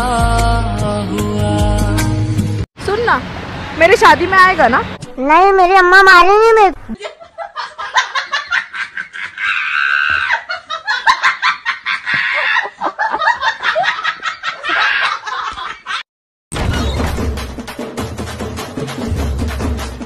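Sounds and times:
men laughing: 0:06.9 - 0:16.0
music with percussive beat: 0:16.5 - 0:20.0.

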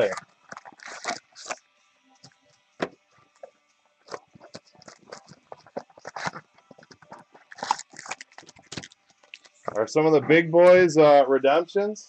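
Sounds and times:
foil packs crinkling: 0:00.0 - 0:01.6, 0:04.0 - 0:10.9.

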